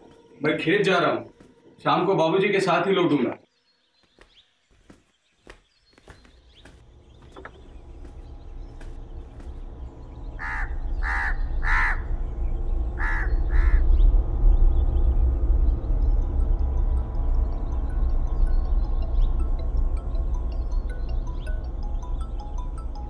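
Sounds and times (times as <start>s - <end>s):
low rumbling drone: 6.8s - 23.0s
crow cawing: 10.4s - 12.2s, 13.0s - 13.8s.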